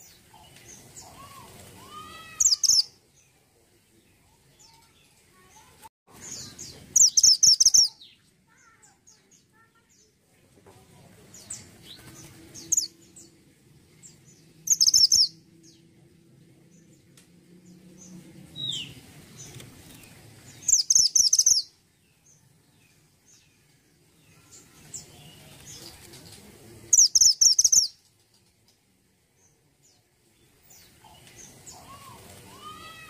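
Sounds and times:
faint bird chirps: 0:00.0 - 0:02.9, 0:04.6 - 0:09.9, 0:14.6 - 0:15.4, 0:20.6 - 0:21.7, 0:26.9 - 0:28.5
songbird chattering: 0:02.2 - 0:02.9, 0:06.4 - 0:08.9, 0:14.7 - 0:15.4, 0:20.6 - 0:21.7, 0:26.9 - 0:28.2.

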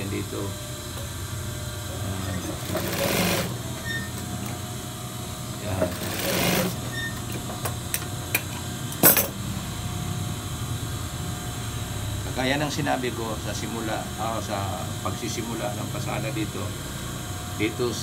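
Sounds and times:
sewing machine motor humming: 0:02.0 - 0:04.5, 0:05.8 - 0:06.9
sewing machine stitching: 0:02.4 - 0:03.6, 0:05.9 - 0:06.8.

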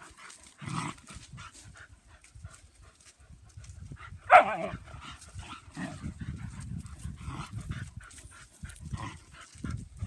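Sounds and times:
dogs panting: 0:00.0 - 0:10.0.

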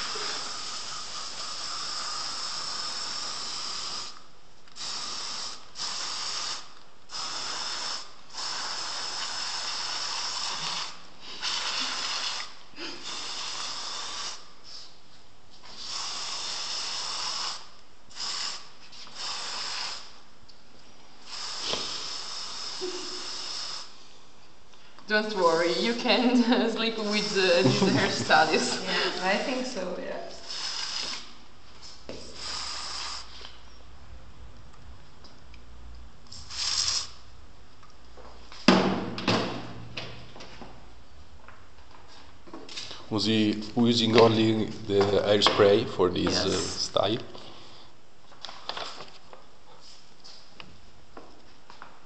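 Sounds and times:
aerosol hair spray hissing: 0:00.0 - 0:14.9, 0:15.6 - 0:20.2, 0:21.2 - 0:24.0, 0:30.4 - 0:31.4, 0:32.1 - 0:33.5, 0:36.3 - 0:37.2.

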